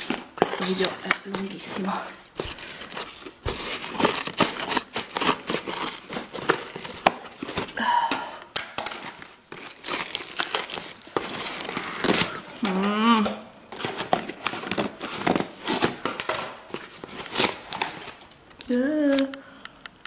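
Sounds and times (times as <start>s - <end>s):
cardboard tearing and crinkling: 0.0s - 7.8s, 9.0s - 12.9s, 13.7s - 18.3s.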